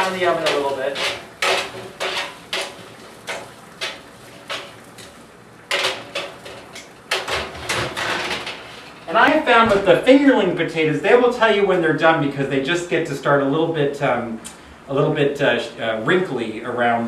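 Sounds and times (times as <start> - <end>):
metal tongs scraping baking sheet: 0.0 - 5.1.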